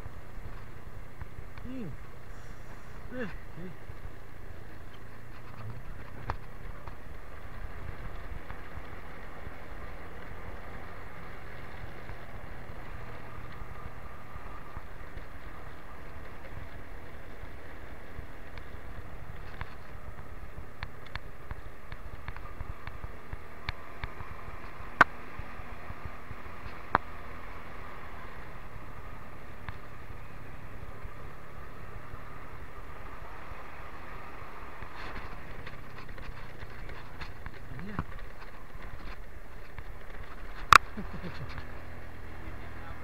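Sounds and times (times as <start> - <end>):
motorcycle engine: 0.0 - 43.0
wind and road noise: 0.0 - 43.0.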